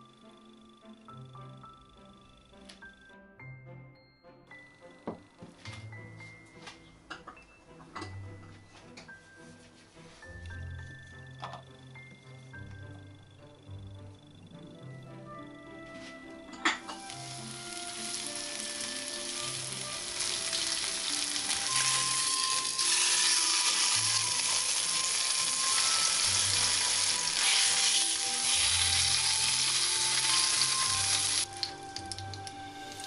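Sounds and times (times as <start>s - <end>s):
meat sizzling in a frying pan: 16.9s - 33.0s.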